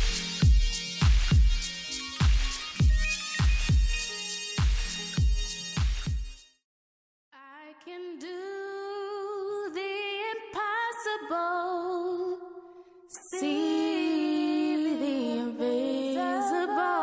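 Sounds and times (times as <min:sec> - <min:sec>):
woman singing wordlessly: 0:07.4 - 0:17.0.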